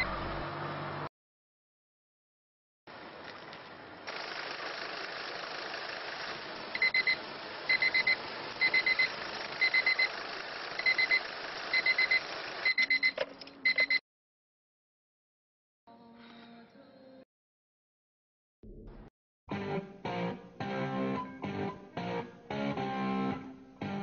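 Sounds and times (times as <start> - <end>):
electronic alarm beeping: 6.8 - 10.1, 10.8 - 14.0.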